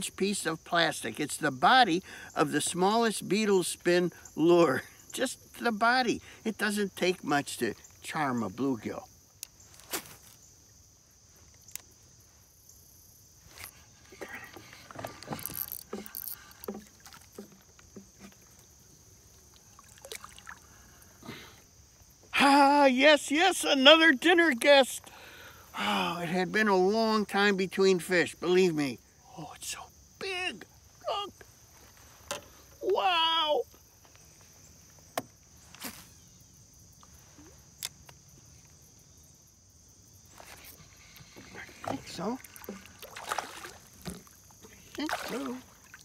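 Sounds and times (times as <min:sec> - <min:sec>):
insects droning: 0:00.0 - 0:46.0
boat and tackle ticks: 0:09.4 - 0:09.6, 0:13.6 - 0:20.2
fish splashing from water: 0:19.5 - 0:20.8, 0:41.7 - 0:46.0.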